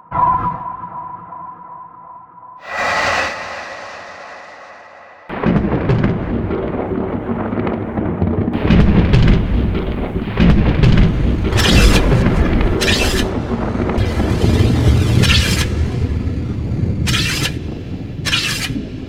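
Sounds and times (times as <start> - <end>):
heavy low rumble: 2.6 - 7.8
thunder-like crash: 2.6 - 11.5.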